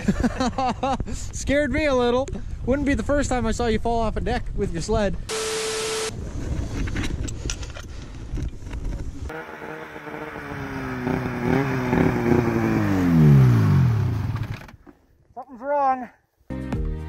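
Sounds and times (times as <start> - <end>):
snowmobile engine running: 9.3 - 14.6.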